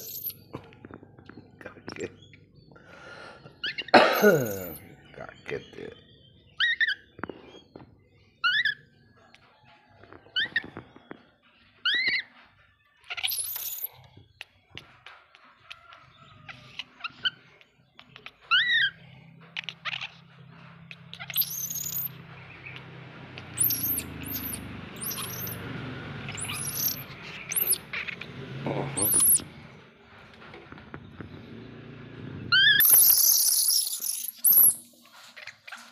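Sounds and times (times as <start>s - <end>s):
baby monkey chirping squeaks: 0.0s - 0.5s, 3.6s - 4.9s, 6.4s - 7.7s, 8.4s - 9.0s, 10.3s - 10.8s, 11.7s - 29.5s, 32.5s - 35.9s.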